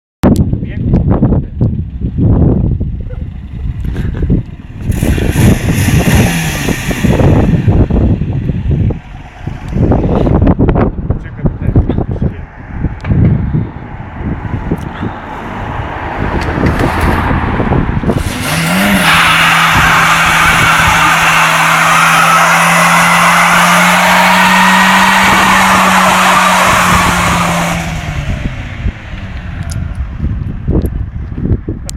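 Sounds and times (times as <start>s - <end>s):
car engine revving: 2.7s - 11.0s, 13.7s - 30.6s
tyres screeching: 18.1s - 28.1s.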